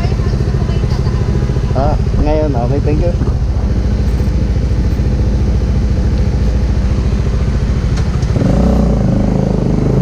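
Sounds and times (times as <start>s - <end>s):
motorcycle engine idling and revving: 0.0s - 10.0s.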